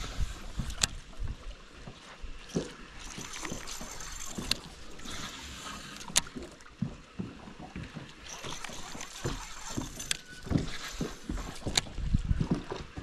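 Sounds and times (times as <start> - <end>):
water lapping against boat hull: 0.0 - 13.0
fishing reel clicks: 2.5 - 6.6, 8.2 - 11.9.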